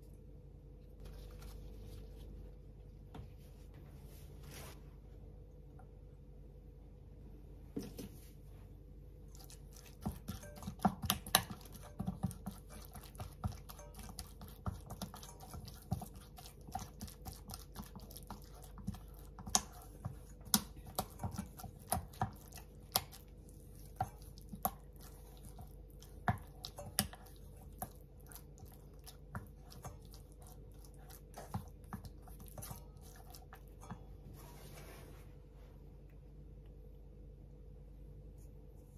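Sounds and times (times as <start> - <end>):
spatula mashing tofu in bowl: 9.3 - 34.3.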